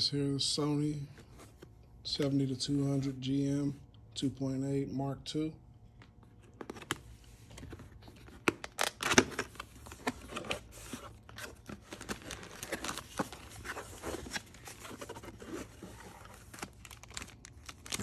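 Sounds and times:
cardboard box rustling and scraping: 9.8s - 16.8s.

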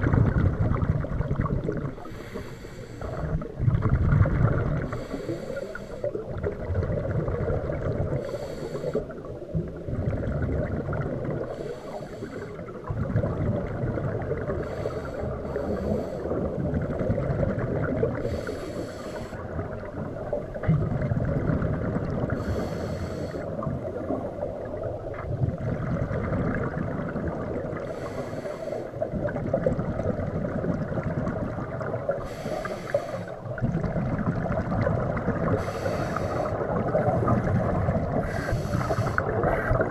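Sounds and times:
bubbling exhaled air: 0.0s - 39.9s
scuba regulator hissing inhale: 2.0s - 3.4s, 4.9s - 6.2s, 8.2s - 9.2s, 11.4s - 12.7s, 14.5s - 16.5s, 18.2s - 19.5s, 22.3s - 23.6s, 27.8s - 29.0s, 32.2s - 33.4s, 35.5s - 37.5s, 38.1s - 39.9s.

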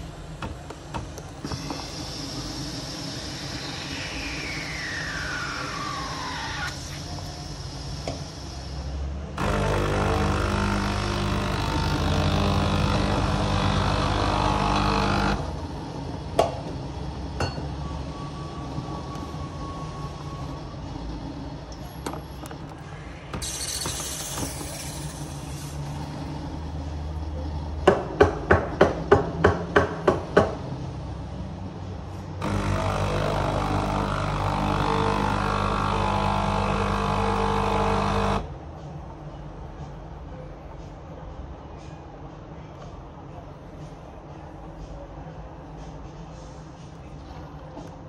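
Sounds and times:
steam wand hissing: 1.5s - 9.5s.

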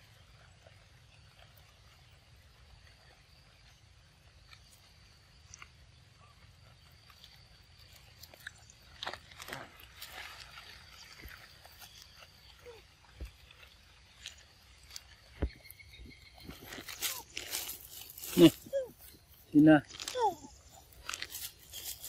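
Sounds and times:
monkey chewing: 6.8s - 22.0s.

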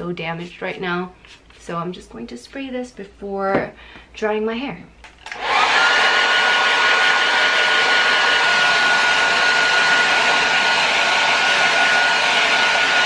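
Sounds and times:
hair dryer running: 5.2s - 13.0s.

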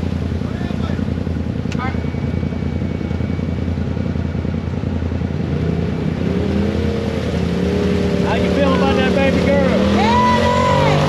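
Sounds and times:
engine idling: 0.0s - 6.0s.

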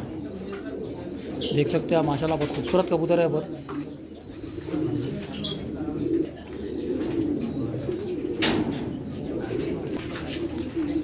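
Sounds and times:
pigeons cooing: 0.0s - 11.0s.

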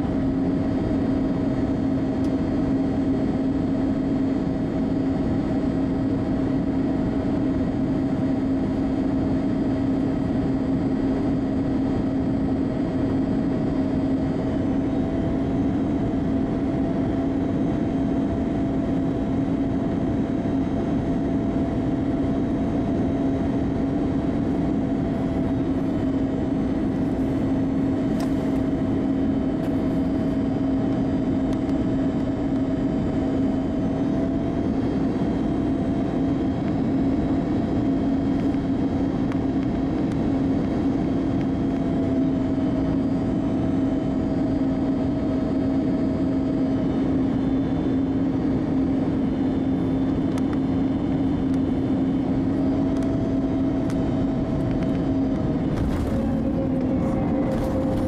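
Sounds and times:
jet engines running: 0.0s - 58.0s
rush of airflow: 55.5s - 58.0s.

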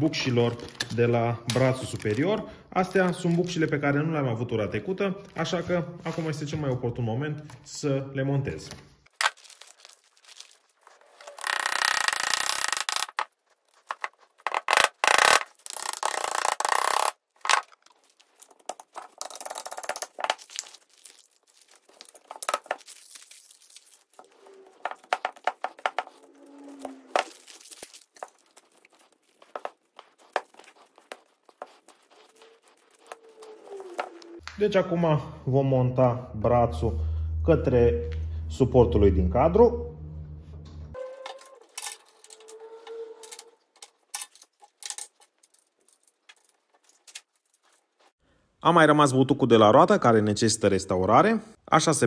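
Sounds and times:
plastic bag crinkling and tearing: 0.2s - 2.4s, 9.1s - 34.4s, 43.2s - 48.1s
small clicks knocks and scrapes: 24.2s - 27.3s.

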